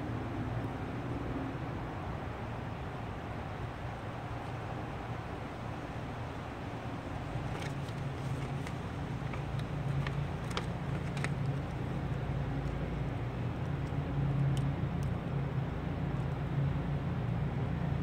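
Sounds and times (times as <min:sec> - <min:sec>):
backing paper clicks and crinkles: 0:07.1 - 0:14.0.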